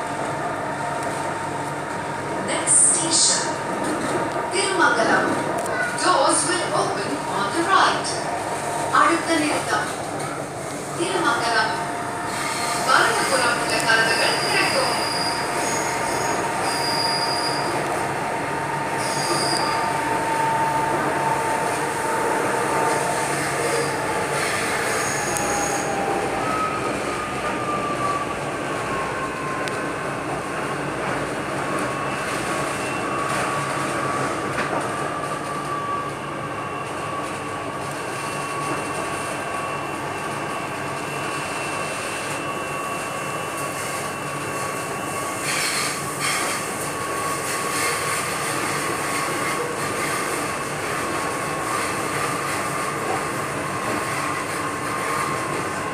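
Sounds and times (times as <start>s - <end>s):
train wheels rumbling on rail: 0.0s - 55.9s
train whine: 0.0s - 55.9s
high-pitched squeals: 12.2s - 29.6s.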